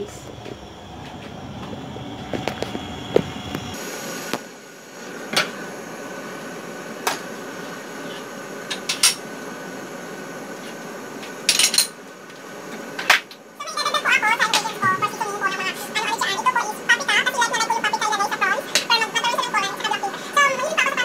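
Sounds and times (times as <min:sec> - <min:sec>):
steady hum: 0:00.0 - 0:11.5.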